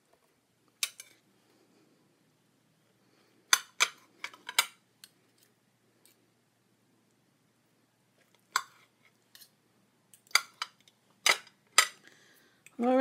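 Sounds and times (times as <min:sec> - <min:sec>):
cutlery clinking on a plate: 0:00.8 - 0:01.2, 0:03.5 - 0:04.8, 0:10.2 - 0:12.0.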